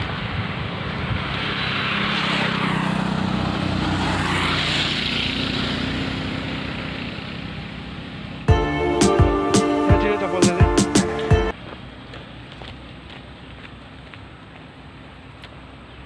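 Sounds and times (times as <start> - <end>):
vehicle engine passing: 0.0 - 12.0.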